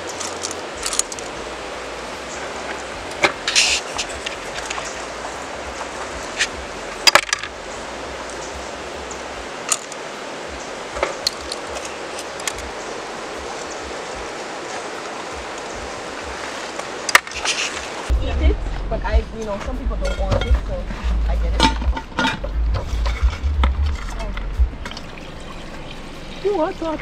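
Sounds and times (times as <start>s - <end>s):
river rushing: 0.0s - 27.0s
snail shells clicking: 0.1s - 1.3s, 11.1s - 12.8s.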